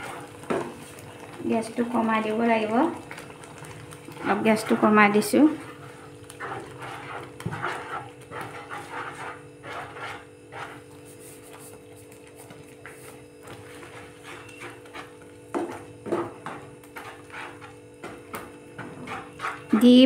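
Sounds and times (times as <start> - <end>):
steady low hum: 0.0 - 20.0
wooden spoon scraping pan: 0.0 - 20.0.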